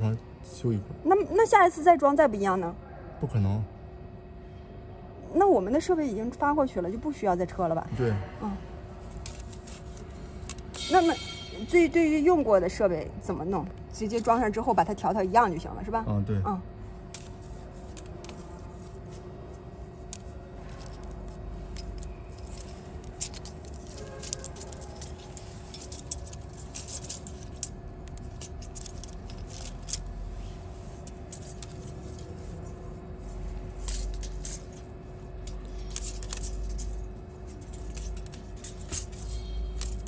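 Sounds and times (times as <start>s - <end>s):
steady hum: 0.0s - 40.0s
steel ruler clicking and scraping: 20.0s - 30.1s, 31.0s - 32.5s, 33.7s - 40.0s.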